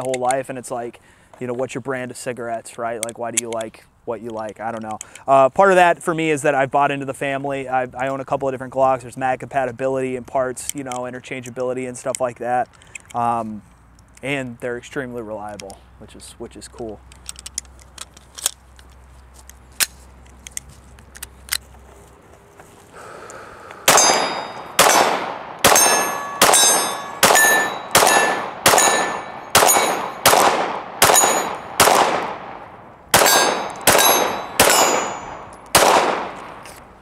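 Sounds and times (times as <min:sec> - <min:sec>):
handling clicks: 0:16.7 - 0:21.8
pistol shots ringing: 0:23.9 - 0:36.6.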